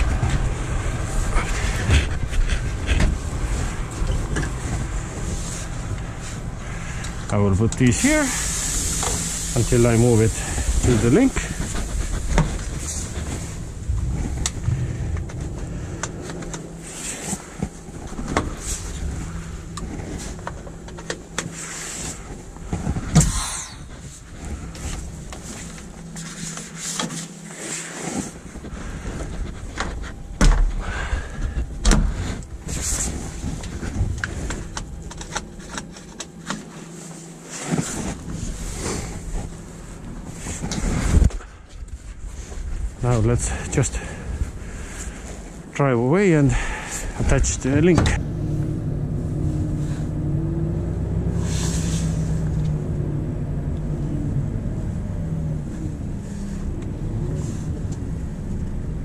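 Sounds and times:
diesel engine idling: 0.0 - 26.3.

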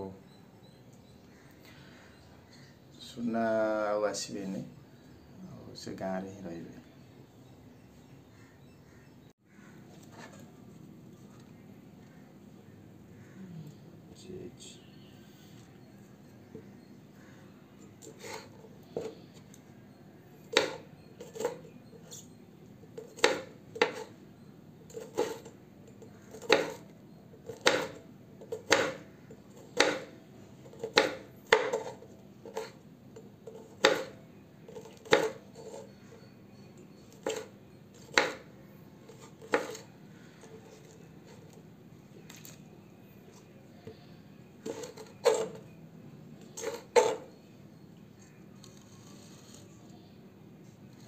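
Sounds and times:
knife slicing vegetables: 18.0 - 19.2, 24.9 - 25.5, 26.2 - 26.8, 27.4 - 30.1, 30.7 - 32.8, 33.4 - 36.3, 37.2 - 38.4, 39.1 - 39.9, 44.6 - 45.6, 46.5 - 47.3.

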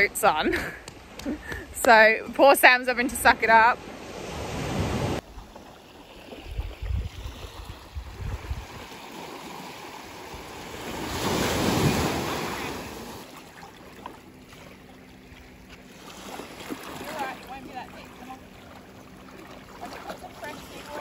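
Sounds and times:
small waves washing in: 3.2 - 21.0
wind buffeting microphone: 6.3 - 9.0.

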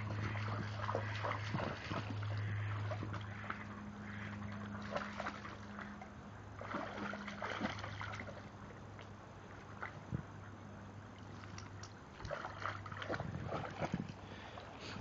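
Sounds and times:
dog splashing in water: 0.0 - 6.0, 6.6 - 8.6, 11.2 - 14.7
low hum: 0.0 - 15.0.

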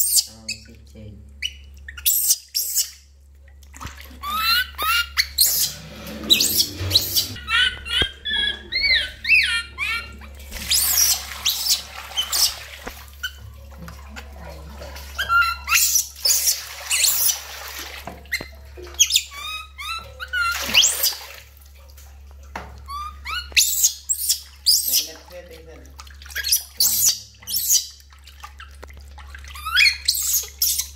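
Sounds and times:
water splashing in metal basin: 0.1 - 30.9
baby monkey crying: 4.2 - 12.6, 15.2 - 17.4, 19.0 - 21.2, 22.8 - 25.1, 29.5 - 30.9.

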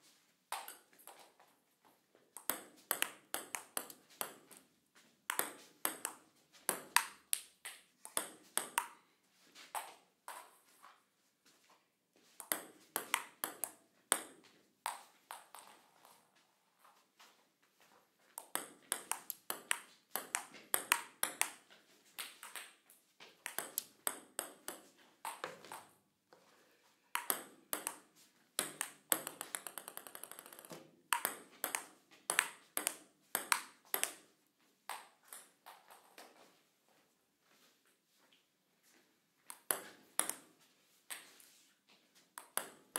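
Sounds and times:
table tennis ball clicking: 28.6 - 34.2.

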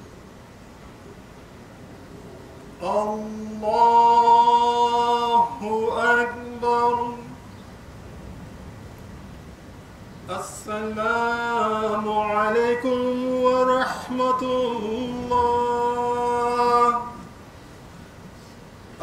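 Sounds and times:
man chanting: 2.8 - 7.5, 10.3 - 17.3.

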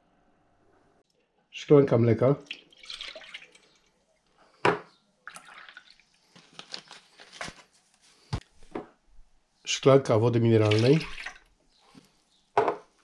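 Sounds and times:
water poured into a glass: 2.4 - 3.9, 5.2 - 6.1, 10.6 - 11.4
glass and bottle set down: 12.6 - 12.8
knock on worktop: 12.6 - 12.8.

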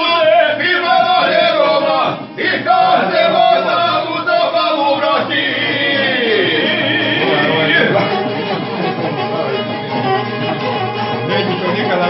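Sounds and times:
man singing: 0.0 - 8.4
plucked string instrument: 0.0 - 12.0
violin: 0.0 - 12.0.

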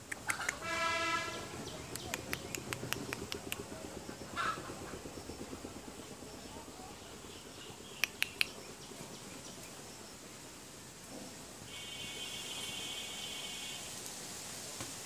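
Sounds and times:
sharp clicks: 0.0 - 0.6, 1.9 - 3.7, 8.0 - 8.6
rhythmic rumble: 0.0 - 10.6
horn: 0.6 - 1.6, 11.7 - 14.0.

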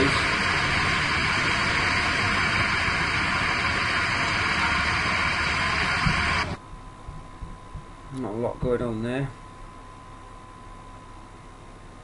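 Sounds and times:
loud rushing roar: 0.0 - 6.6.

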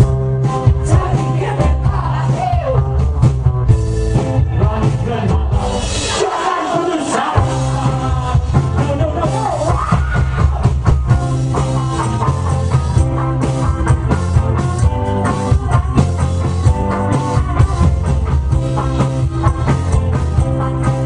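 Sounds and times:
rock band playing live: 0.0 - 21.0
person singing: 4.3 - 11.4, 14.1 - 21.0.

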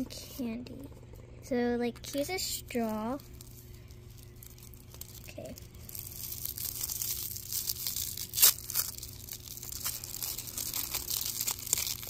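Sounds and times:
wrapper crinkling and tearing: 2.8 - 12.0
sharp wrapper rip: 5.9 - 12.0.

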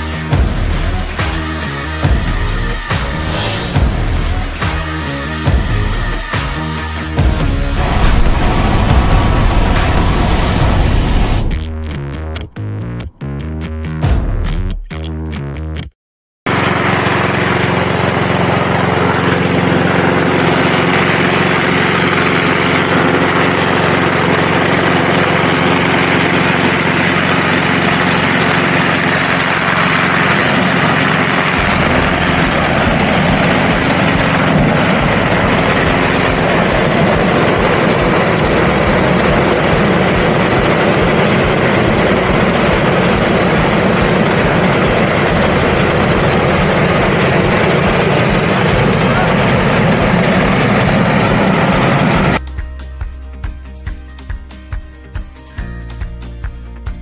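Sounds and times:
petrol engine fan running: 0.0 - 11.3, 16.5 - 52.4
deep rumble: 7.2 - 13.3, 28.8 - 52.4.

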